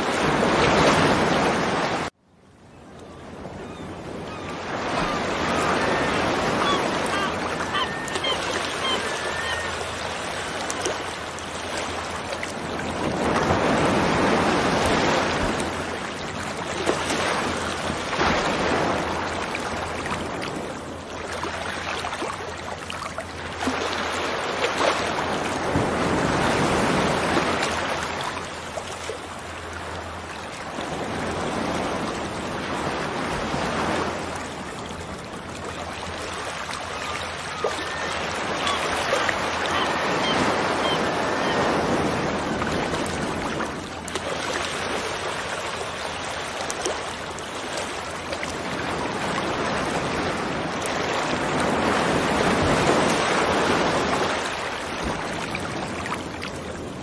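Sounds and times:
sea surf washing in: 0.0s - 2.1s, 4.6s - 21.0s, 23.6s - 28.5s, 48.5s - 57.0s.

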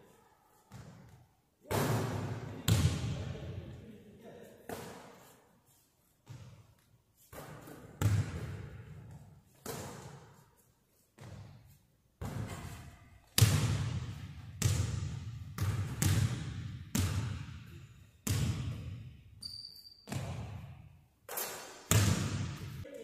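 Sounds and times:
basketball bouncing on wooden floor: 6.2s - 6.7s, 7.3s - 10.2s, 11.2s - 11.6s, 12.2s - 17.6s, 18.2s - 19.0s
brief high squeak: 19.4s - 20.1s.

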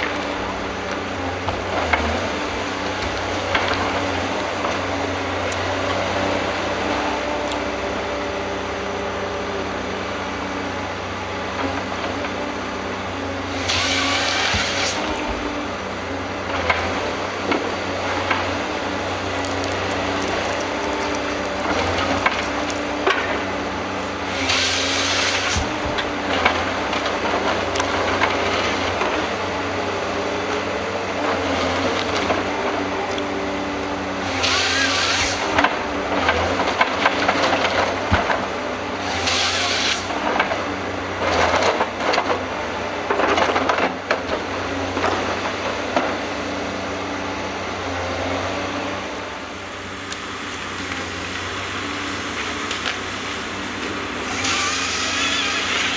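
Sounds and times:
chainsaw cutting through log: 0.0s - 43.0s, 50.7s - 55.9s
diesel engine and hydraulics running: 0.0s - 55.9s.

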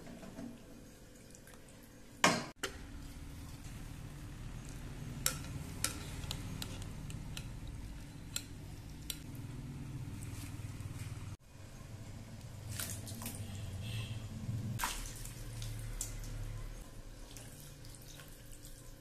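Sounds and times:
wooden spatula stirring paste: 4.5s - 9.2s
spatula scraping a wok: 5.3s - 8.4s.

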